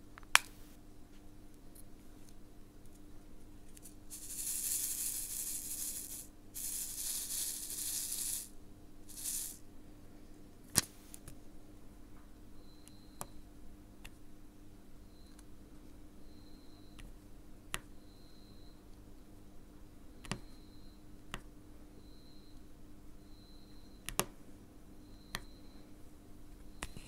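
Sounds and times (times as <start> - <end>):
beads rattling in plastic tray: 3.8 - 8.5, 9.1 - 9.6.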